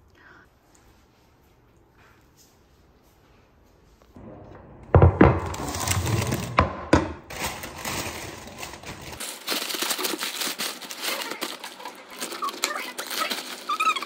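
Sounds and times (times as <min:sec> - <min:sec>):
paper bag crinkling: 0:07.3 - 0:14.0.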